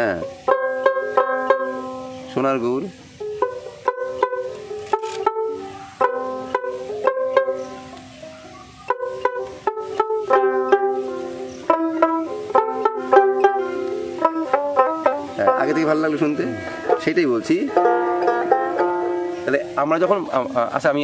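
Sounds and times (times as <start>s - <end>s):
plucked lute melody: 0.0s - 21.0s.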